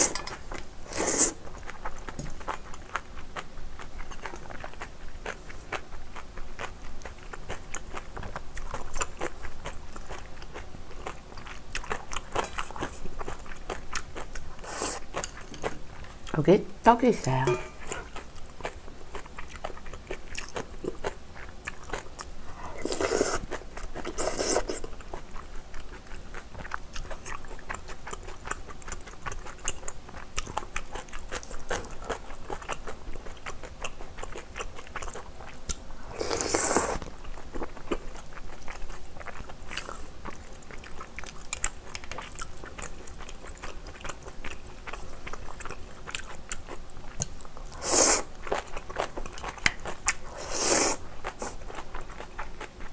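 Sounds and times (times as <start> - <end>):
chewing and crunching: 0.0 - 16.4, 17.8 - 52.9
noodle slurps: 22.8 - 23.5, 50.3 - 51.0.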